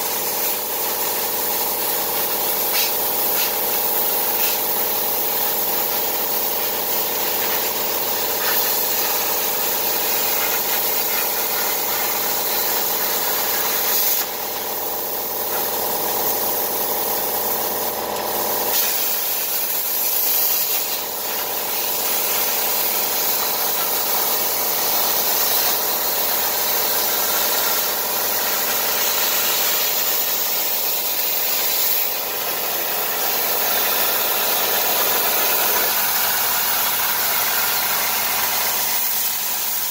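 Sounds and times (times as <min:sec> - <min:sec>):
plasma cutter arc hissing: 0:00.0 - 0:39.9
blower hum: 0:20.7 - 0:39.9.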